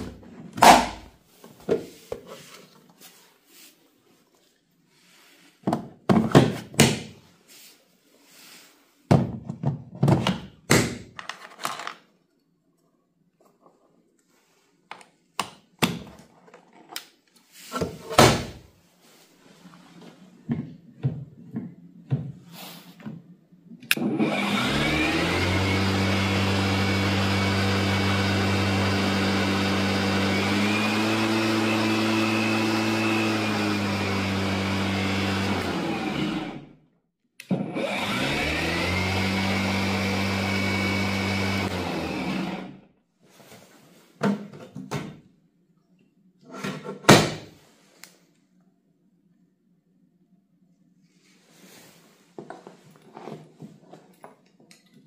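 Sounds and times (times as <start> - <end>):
lawn mower electric motor whine: 24.0 - 36.7, 37.5 - 42.8.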